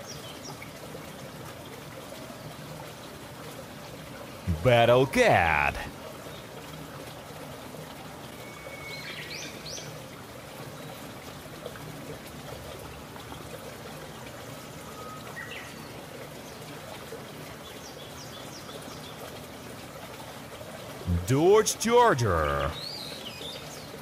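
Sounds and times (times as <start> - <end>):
outdoor background hiss: 4.2 - 6.2, 21.0 - 23.0.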